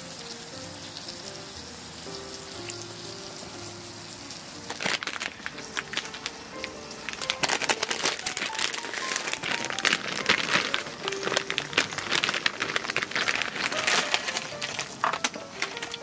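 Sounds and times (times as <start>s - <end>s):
soft background music: 0.0s - 16.0s
crackling and crinkling: 4.3s - 16.0s.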